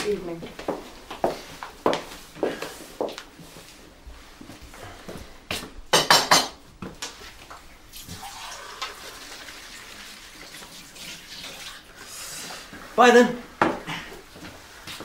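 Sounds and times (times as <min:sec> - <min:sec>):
water running in sink: 0:07.9 - 0:12.6.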